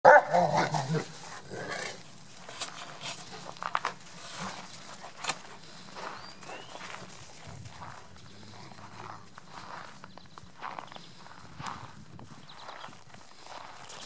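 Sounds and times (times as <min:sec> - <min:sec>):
paws scuffling on snow: 0:00.4 - 0:14.0.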